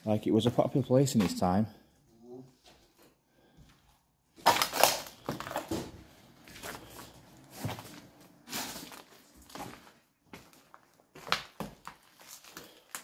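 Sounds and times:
footsteps crunching over debris: 6.4s - 13.0s.

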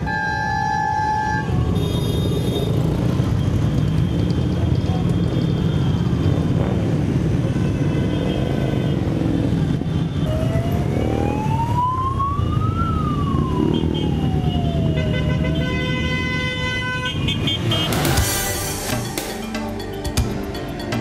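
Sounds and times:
motorcycle engines passing: 2.2s - 15.6s
siren wailing: 10.3s - 15.5s
steady high tone: 17.6s - 21.0s.

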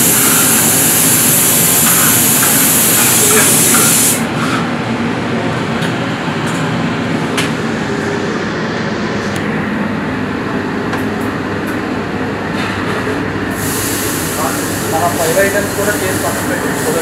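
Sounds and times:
griddle sizzling: 0.0s - 4.2s.

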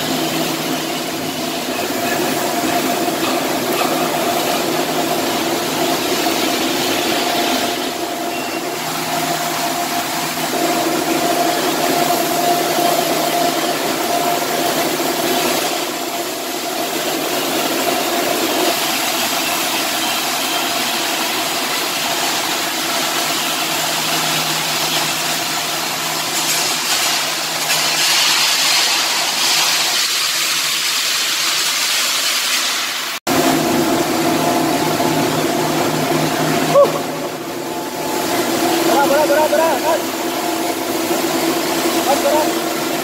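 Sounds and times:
mechanical hum: 0.0s - 43.0s
welding arc hissing and crackling: 0.0s - 43.0s.

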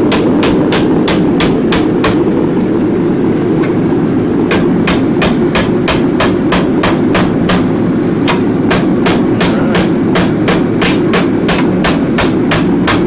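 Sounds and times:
hammer striking hot metal bar: 0.0s - 2.4s, 4.4s - 13.0s
steady low whir: 0.0s - 13.0s.

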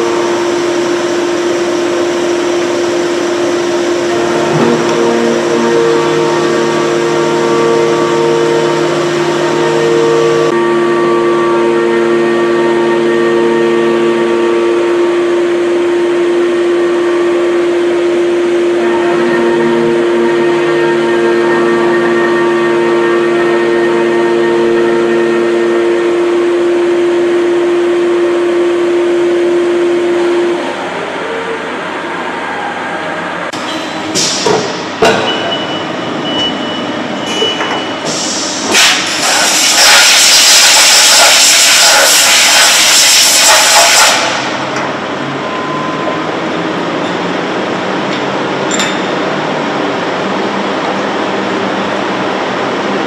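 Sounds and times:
metal cutting tone: 0.0s - 30.6s
milling spindle whine: 0.0s - 30.8s
coolant spray hiss: 38.1s - 44.5s.

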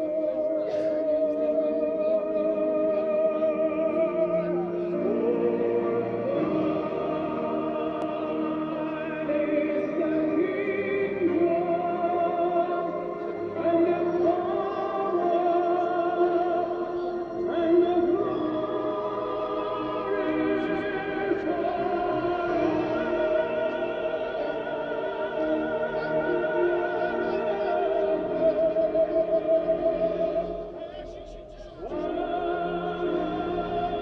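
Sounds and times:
music with singing voices: 0.0s - 34.0s.

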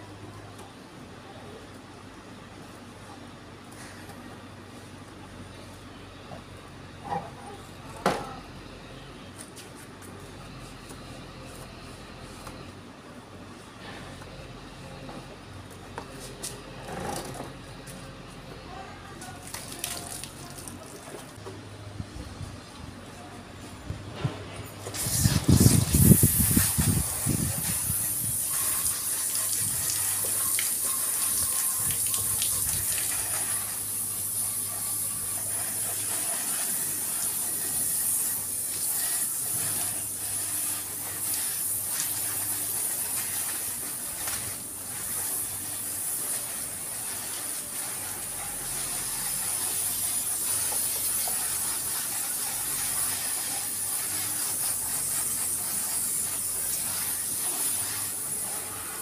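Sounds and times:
garden hose spraying water: 19.1s - 21.4s, 24.7s - 59.0s.

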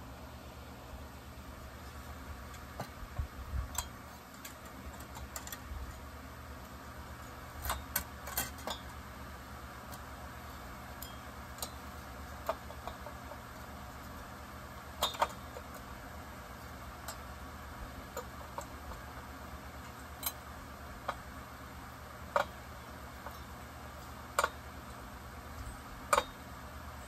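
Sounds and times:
steady low hum: 0.0s - 27.0s
light metallic clicks and taps: 2.5s - 6.0s, 17.0s - 17.3s, 22.3s - 22.6s, 23.2s - 25.0s.

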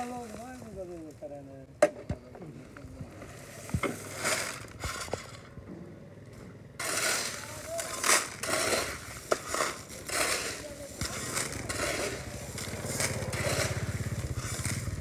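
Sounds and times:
shovel scooping gravel: 3.3s - 5.5s, 6.8s - 15.0s
gravel pouring into metal wheelbarrow: 6.8s - 14.9s.

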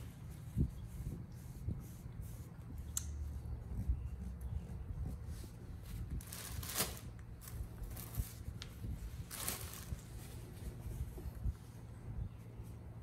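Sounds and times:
low steady hum: 0.0s - 13.0s
paper tissues rustling: 5.2s - 11.8s.

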